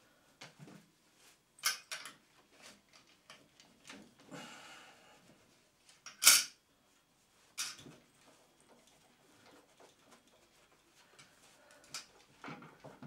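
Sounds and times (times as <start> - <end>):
small metallic clicks and knocks: 1.6 - 2.2, 6.0 - 6.6, 7.6 - 8.0.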